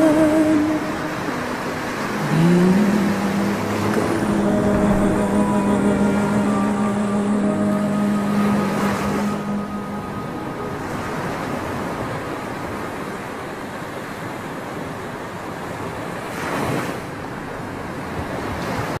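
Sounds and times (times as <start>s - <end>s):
waves breaking on rocky shore: 0.0s - 19.0s.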